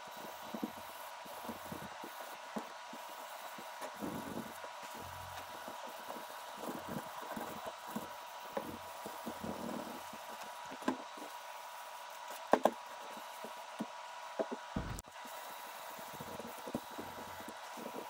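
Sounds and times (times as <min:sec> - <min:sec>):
low thump: 0:14.8 - 0:15.0.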